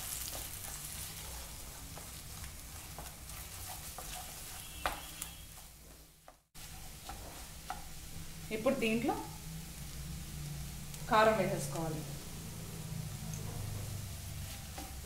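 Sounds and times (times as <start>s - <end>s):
egg and cabbage sizzling in a pan: 0.0s - 15.0s
spatula scraping and tapping a pan: 0.3s - 7.9s, 14.4s - 15.0s.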